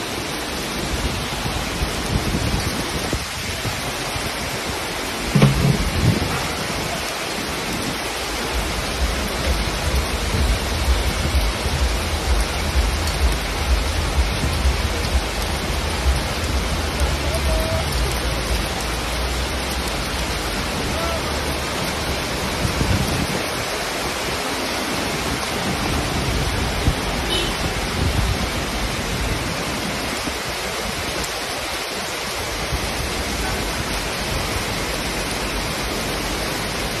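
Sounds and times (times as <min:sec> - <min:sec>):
heavy rain on a street: 0:00.0 - 0:37.0.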